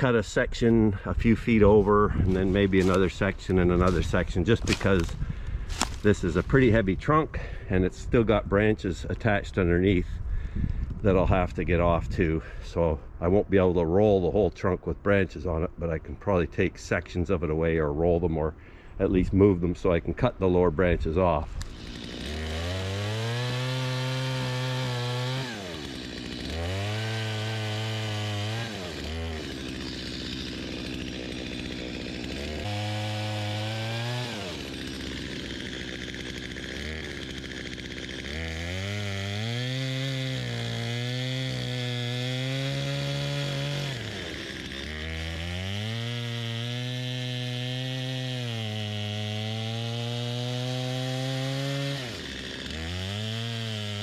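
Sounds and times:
chainsaw cutting wood: 0:00.0 - 0:09.3, 0:21.0 - 0:54.0.

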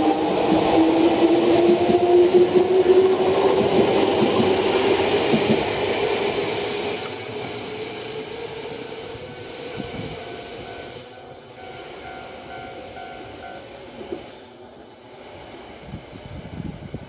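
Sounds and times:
train wheels clicking: 0:00.0 - 0:15.0.

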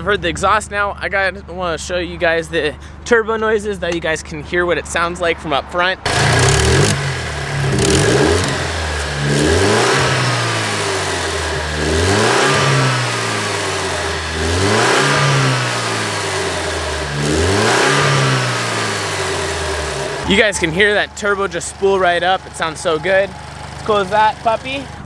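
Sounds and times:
car engine revving: 0:06.1 - 0:25.0.

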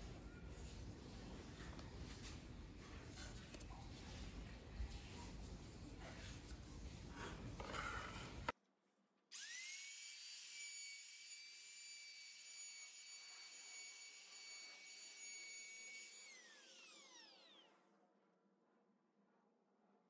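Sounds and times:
handling and rubbing: 0:00.0 - 0:08.5
trim router whine: 0:09.3 - 0:17.9.

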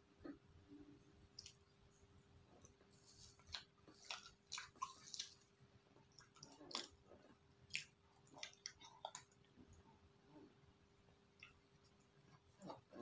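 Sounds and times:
wet mouth smacks eating: 0:03.2 - 0:05.5, 0:06.2 - 0:07.0, 0:07.7 - 0:09.3.

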